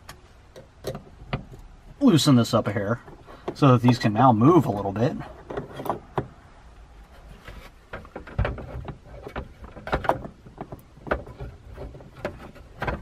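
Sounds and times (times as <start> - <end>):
plastic clicks and knocks: 7.9 - 13.0.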